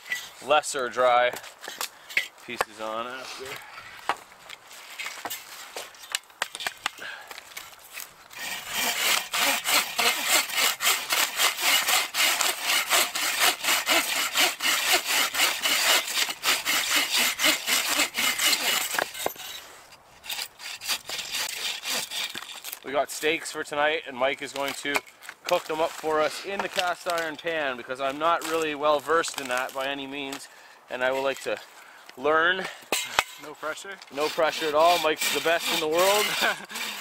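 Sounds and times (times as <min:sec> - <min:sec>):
hand saw cutting log: 0:08.0 - 0:22.8, 0:32.9 - 0:37.0.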